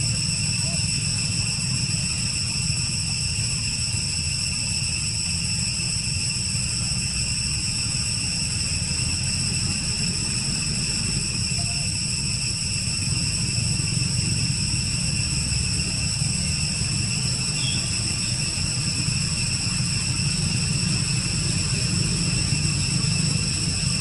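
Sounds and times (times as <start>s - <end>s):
constant high-pitched whine: 0.0s - 24.0s.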